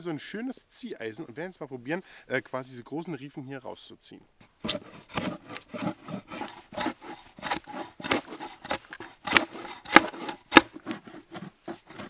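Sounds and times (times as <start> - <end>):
drawknife scraping wood: 4.4 - 12.0.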